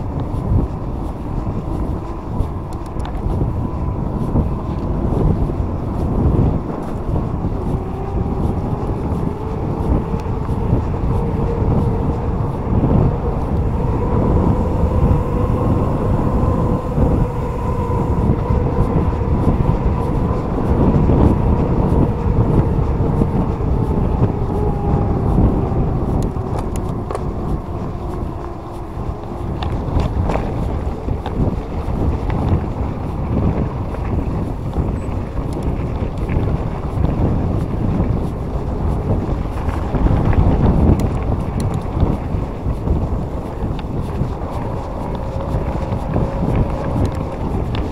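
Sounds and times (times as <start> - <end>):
wind on microphone: 0.0 - 47.9
electric motor whine: 1.0 - 34.2.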